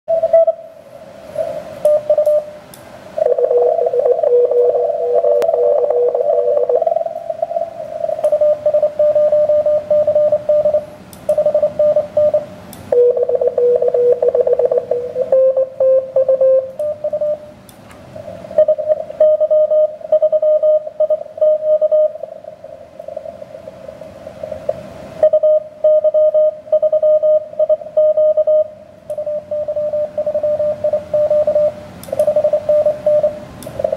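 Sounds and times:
morse code tones: 0:00.1 - 0:00.7, 0:01.4 - 0:02.6, 0:03.2 - 0:17.5, 0:18.5 - 0:22.3, 0:25.2 - 0:33.9
radio static crackle: 0:03.2 - 0:09.9.

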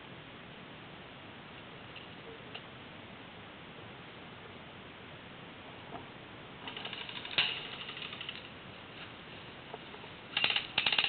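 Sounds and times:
sharp crack: 0:06.6 - 0:09.2
airsoft gun rapid clicks: 0:06.7 - 0:08.5, 0:10.4 - 0:11.0.

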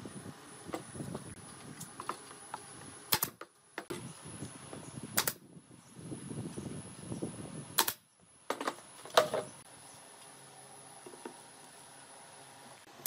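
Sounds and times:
nail gun firing: 0:03.1 - 0:03.4, 0:05.2 - 0:05.4, 0:07.8 - 0:08.0.

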